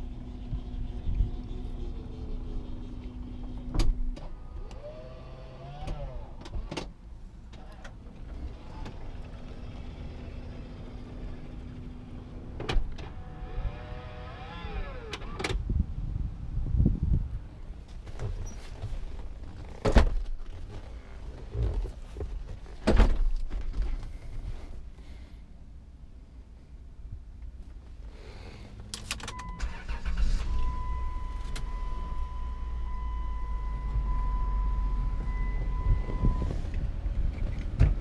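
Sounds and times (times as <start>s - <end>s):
motor whine rising and falling: 13.2s - 15.4s.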